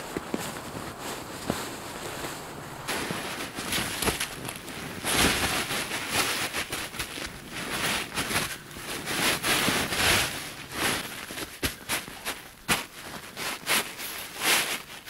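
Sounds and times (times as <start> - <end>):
blanket and plastic sheet rustling: 0.0 - 15.0.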